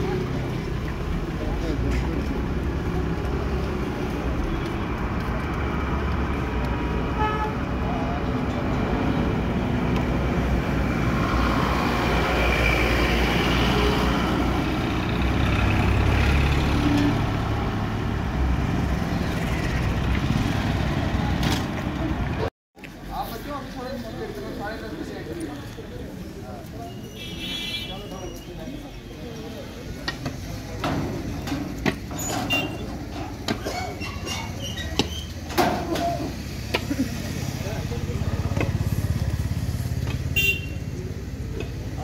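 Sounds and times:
vehicle engines passing: 0:00.0 - 0:27.1, 0:27.9 - 0:42.0
car horn toot: 0:40.4 - 0:40.8.

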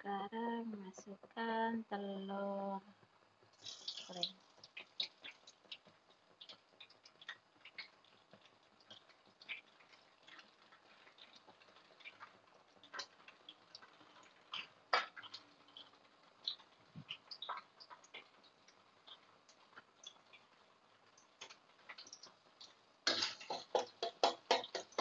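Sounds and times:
oil crackling and popping: 0:02.9 - 0:25.0.

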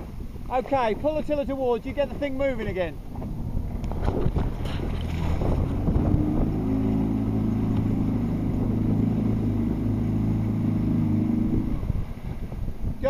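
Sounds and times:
water rushing along hull: 0:00.0 - 0:13.0
outboard motor running: 0:03.0 - 0:12.9.

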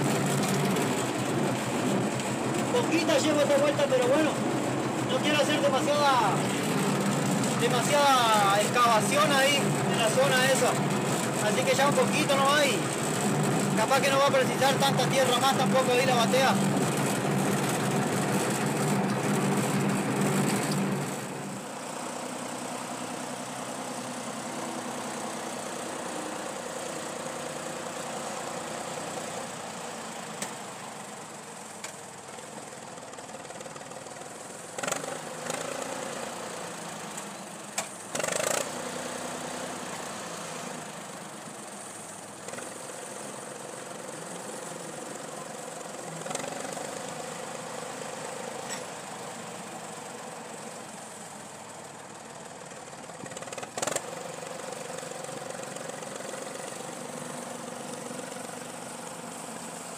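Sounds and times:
tractor engine running: 0:00.0 - 0:59.9.

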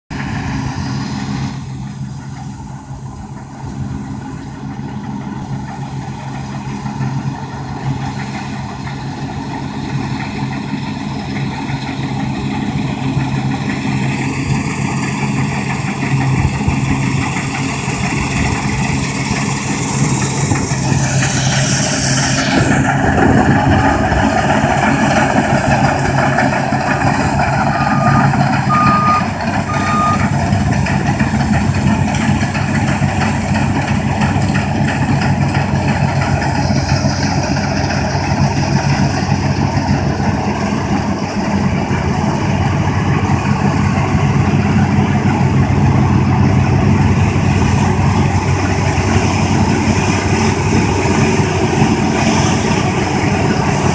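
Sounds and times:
combine harvester running: 0:00.0 - 0:53.9
short high electronic beeps: 0:27.6 - 0:30.3.

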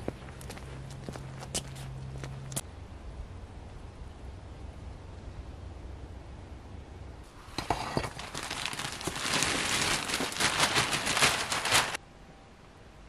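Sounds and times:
plastic sheeting crinkling: 0:07.6 - 0:12.0.

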